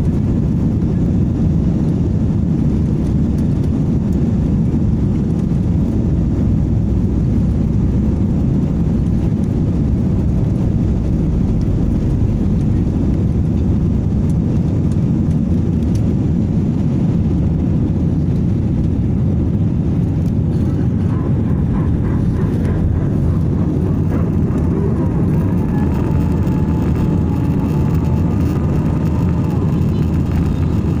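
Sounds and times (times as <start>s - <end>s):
jet engines rumbling: 0.0s - 31.0s
faint whining tones: 20.2s - 31.0s.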